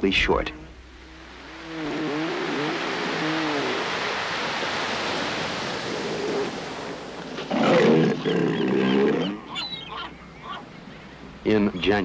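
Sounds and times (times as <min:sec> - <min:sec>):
surf washing on beach: 0:00.7 - 0:12.0
elephant seals calling: 0:01.0 - 0:11.8
gravelly elephant seal bellow: 0:07.4 - 0:10.7.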